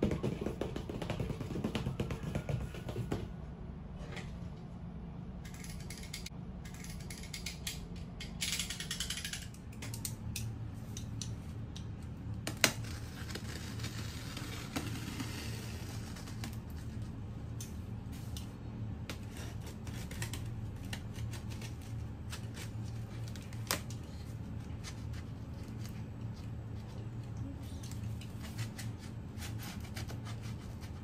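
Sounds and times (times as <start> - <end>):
blade clicks and scrapes on cardboard: 28.4 - 31.0.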